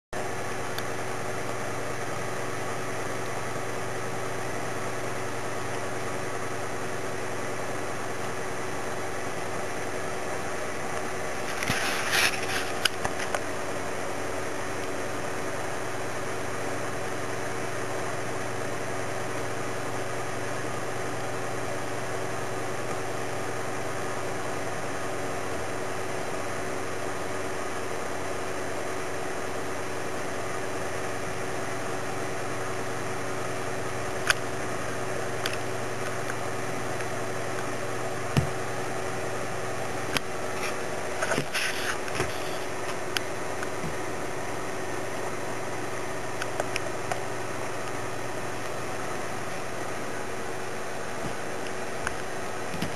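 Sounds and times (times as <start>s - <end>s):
background hum and hiss: 0.2s - 52.9s.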